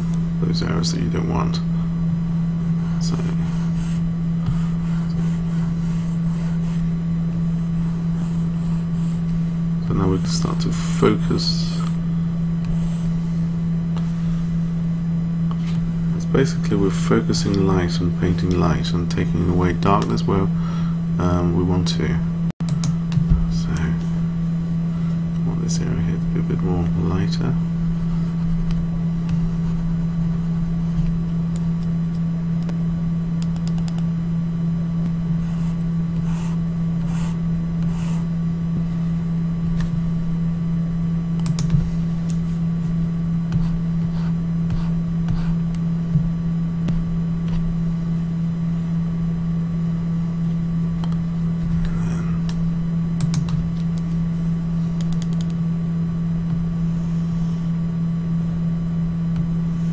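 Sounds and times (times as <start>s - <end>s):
low electrical hum: 0.0s - 59.9s
computer mouse clicks: 33.4s - 34.1s, 41.4s - 41.8s, 55.0s - 55.6s.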